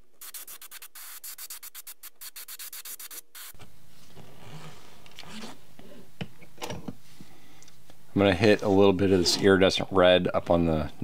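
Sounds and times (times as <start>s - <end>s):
airbrush hissing in short bursts: 0.0s - 3.6s.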